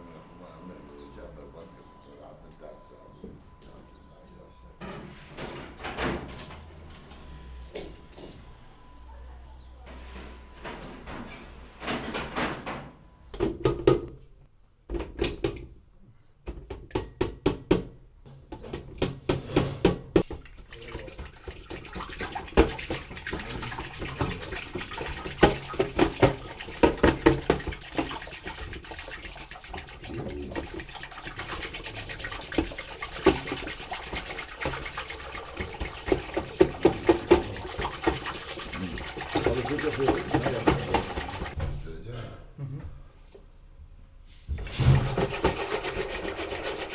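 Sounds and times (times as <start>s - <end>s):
whisk beating liquid in glass dish: 20.2s - 41.6s, 44.6s - 46.9s.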